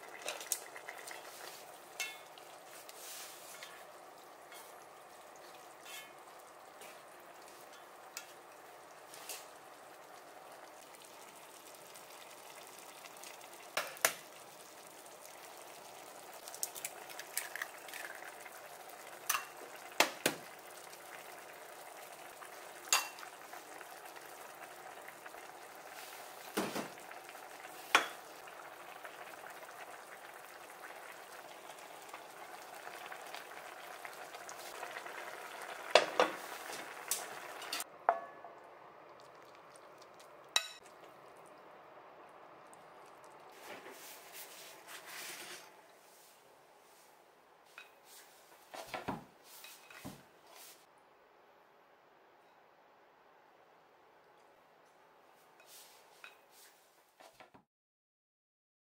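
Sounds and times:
broth bubbling in a pot: 0:00.0 - 0:46.3.

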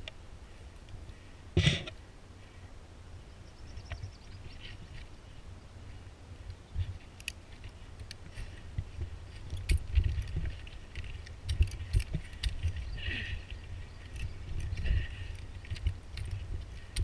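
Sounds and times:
climbing gear clinking: 0:06.8 - 0:17.0.

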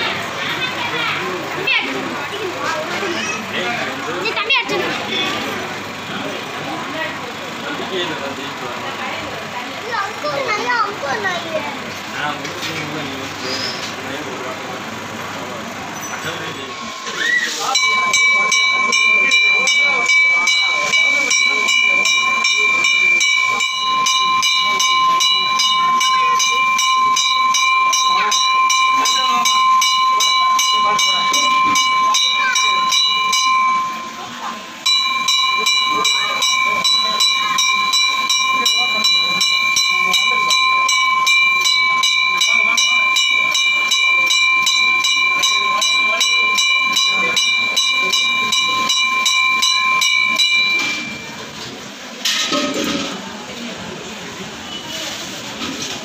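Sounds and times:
temple bells ringing: 0:15.5 - 0:52.0.

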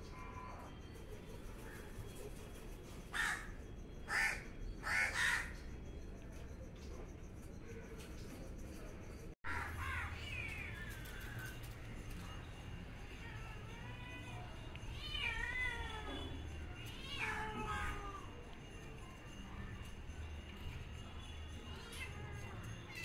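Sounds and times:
crow cawing: 0:03.1 - 0:05.6.

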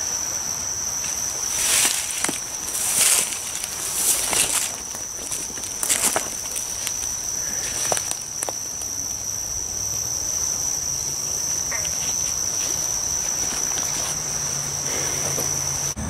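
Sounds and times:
night insects trilling: 0:00.0 - 0:16.0
footsteps rustling in grass: 0:01.0 - 0:09.0, 0:11.8 - 0:14.7.

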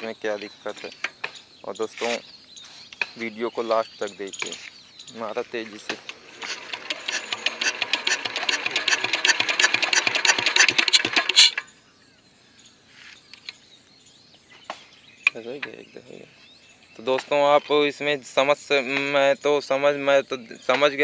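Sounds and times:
diesel engine hand-cranked clatter: 0:05.7 - 0:11.7.

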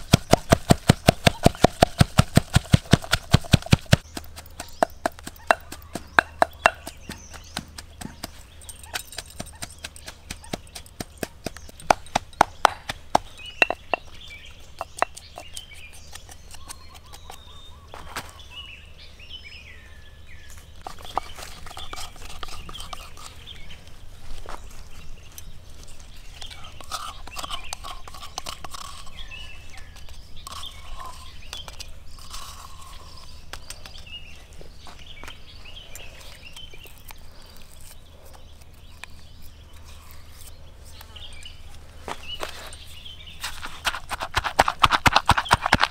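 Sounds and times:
stone pestle pounding in mortar: 0:00.0 - 0:14.1, 0:43.8 - 0:45.9
birds chirping: 0:00.0 - 0:45.9.

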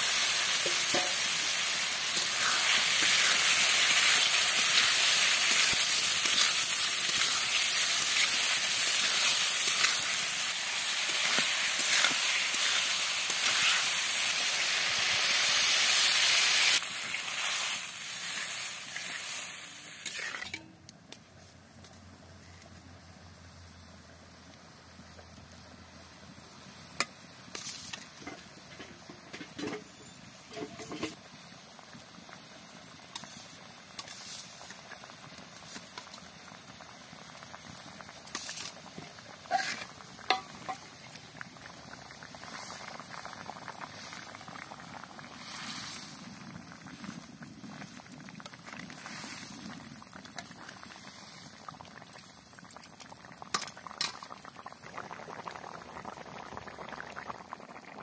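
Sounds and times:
curry bubbling at a boil: 0:00.0 - 0:21.4, 0:22.7 - 0:58.0
metal spatula scraping pan: 0:11.1 - 0:14.0, 0:20.0 - 0:20.7, 0:39.5 - 0:40.5.

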